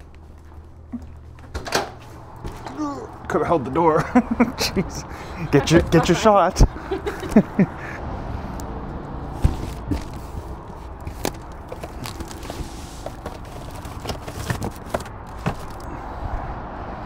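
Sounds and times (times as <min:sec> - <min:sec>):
cardboard box knocks and rustles: 0:09.4 - 0:10.2.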